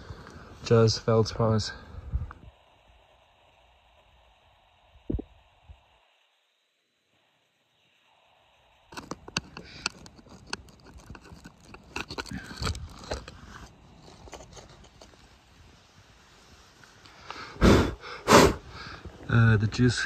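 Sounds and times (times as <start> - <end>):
rock and dirt scraping and knocking: 8.9 - 15.4.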